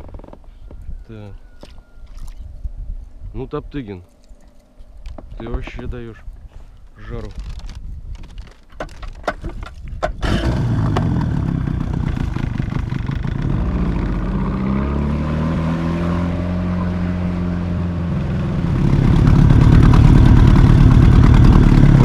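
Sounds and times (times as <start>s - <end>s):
outboard motor running: 10.2s - 22.0s.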